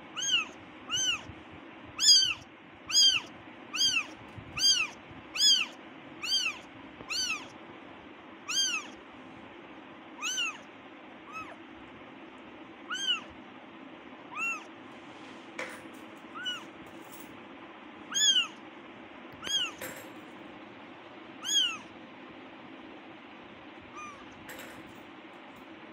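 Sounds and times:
kitten meowing: 0.1s - 1.3s, 2.0s - 7.5s, 8.5s - 9.0s, 10.2s - 11.6s, 12.9s - 13.3s, 14.3s - 14.7s, 16.3s - 16.7s, 18.1s - 18.6s, 19.4s - 19.8s, 21.4s - 21.9s, 23.9s - 24.4s.

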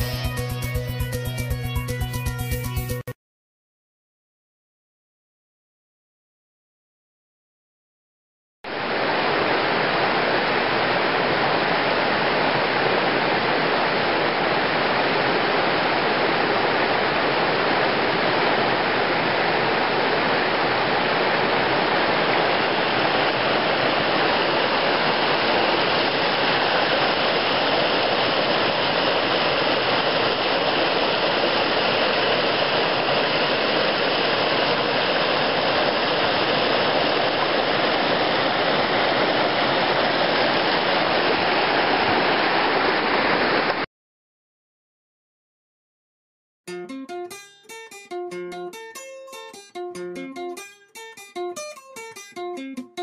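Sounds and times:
creek rushing over rocks: 8.7s - 43.9s.

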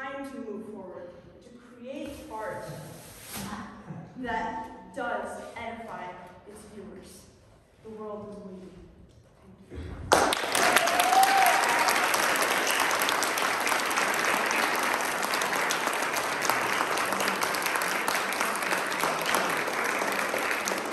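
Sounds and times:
audience applause: 10.1s - 20.9s.

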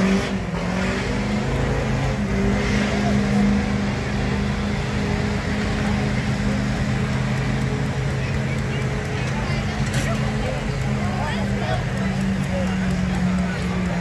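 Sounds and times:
truck engine at high revs: 0.0s - 14.0s.

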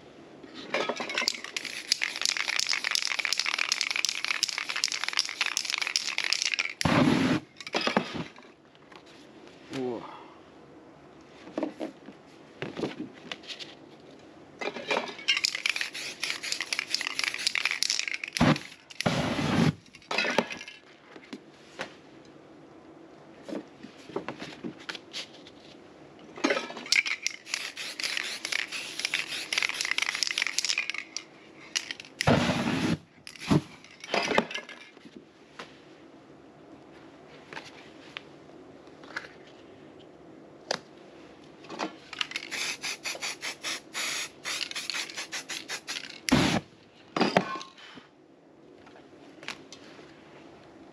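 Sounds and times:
spray paint can hissing: 1.3s - 7.4s, 15.4s - 19.8s, 27.0s - 31.1s, 31.8s - 33.6s, 42.3s - 46.6s
paint igniting whoosh: 6.8s - 7.4s.

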